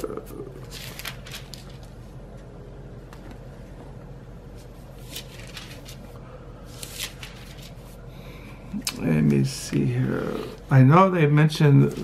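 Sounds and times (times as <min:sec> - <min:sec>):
low room hum: 0:00.0 - 0:12.0
book pages rustling: 0:00.6 - 0:02.0, 0:04.5 - 0:08.0.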